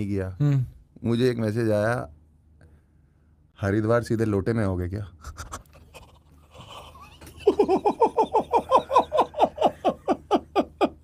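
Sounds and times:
man laughing hard: 6.5s - 11.0s.

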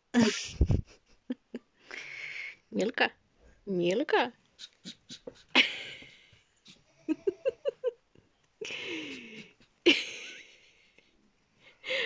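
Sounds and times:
monkey laughing: 6.7s - 7.9s.

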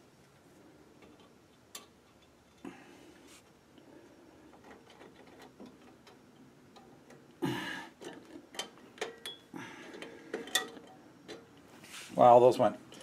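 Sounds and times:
small metal ticks and clicks: 1.0s - 2.6s, 4.5s - 7.2s, 8.0s - 11.4s.

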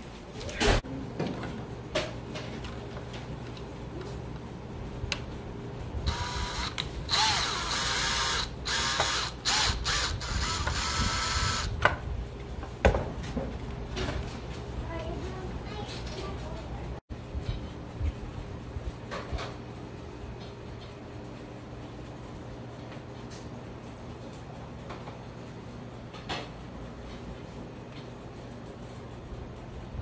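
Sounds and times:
cordless drill whirring: 6.1s - 11.7s.

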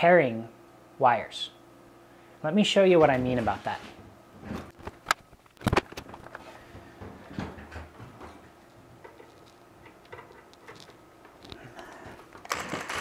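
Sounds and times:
clicks and rustles of handling: 4.5s - 13.0s.

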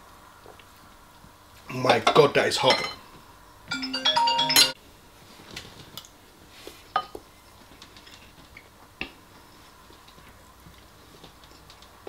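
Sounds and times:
short musical chime: 3.7s - 4.8s.

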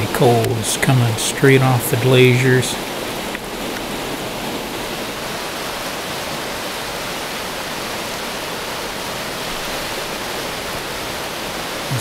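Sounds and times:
fast river rushing: 0.0s - 12.0s.

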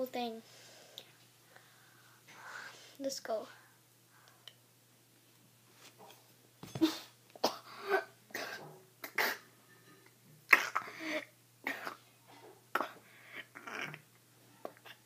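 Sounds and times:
boy coughing: 6.7s - 9.5s, 10.5s - 12.0s.

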